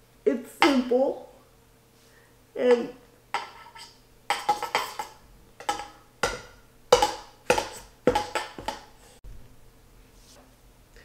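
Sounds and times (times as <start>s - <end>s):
plastic bowl knocking steel bowl: 4.3s - 9.0s.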